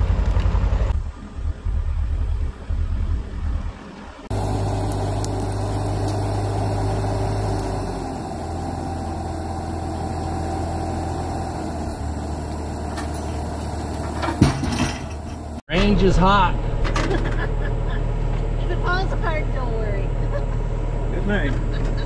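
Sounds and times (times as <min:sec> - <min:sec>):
diesel engine idling: 0:04.3 - 0:15.6, 0:16.6 - 0:22.0.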